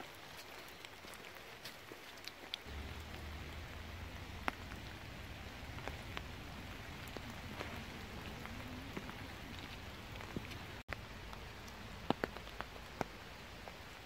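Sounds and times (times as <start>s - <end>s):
light rain on wet paving: 0.0s - 14.0s
drops ticking close by: 2.6s - 13.2s
low rumble: 2.7s - 11.3s.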